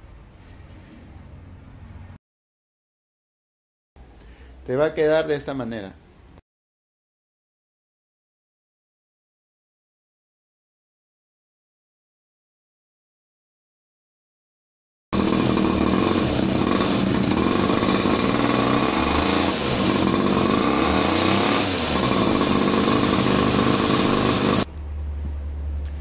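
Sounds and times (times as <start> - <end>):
go-kart engine revving: 15.2 - 24.7.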